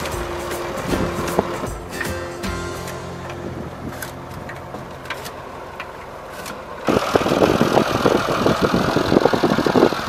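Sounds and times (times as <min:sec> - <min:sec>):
tractor engine clattering: 0:00.0 - 0:10.0.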